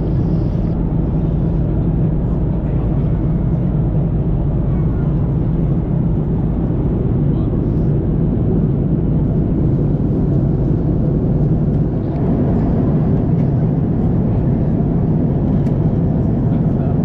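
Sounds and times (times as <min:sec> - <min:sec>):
airplane cabin engine rumble: 0:00.0 - 0:17.0.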